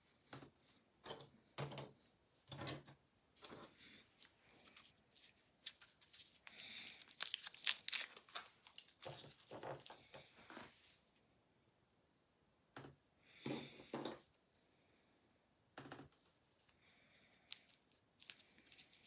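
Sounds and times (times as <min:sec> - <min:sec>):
packaging tearing and crinkling: 0:04.2 - 0:10.0, 0:17.5 - 0:19.0.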